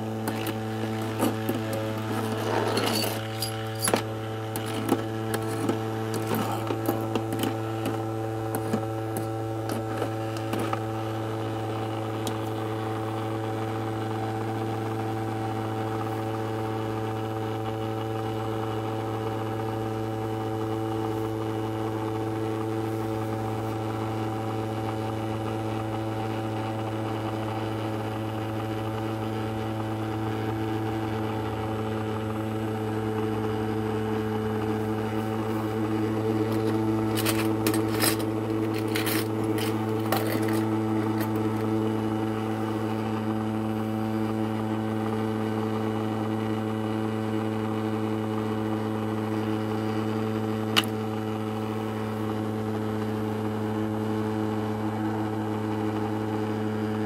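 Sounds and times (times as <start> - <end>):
ultrasonic cleaner buzzing hum: 0.0 - 57.0
metal grabber clicking on coins: 1.2 - 4.0, 36.5 - 41.6.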